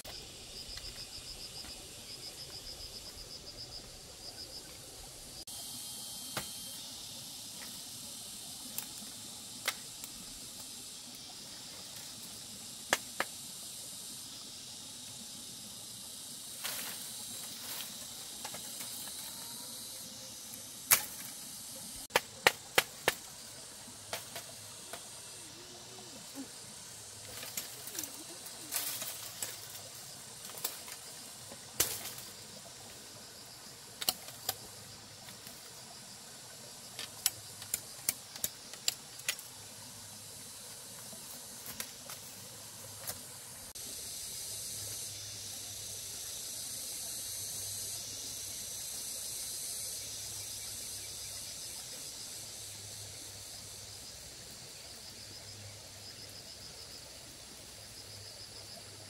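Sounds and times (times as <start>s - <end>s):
steady high hiss: 0.0s - 59.0s
bamboo and twigs snapping: 8.7s - 10.7s, 20.8s - 21.4s, 22.1s - 23.3s, 27.3s - 29.8s, 30.4s - 31.1s, 31.8s - 32.3s, 34.0s - 34.6s, 36.9s - 39.5s, 41.6s - 42.3s.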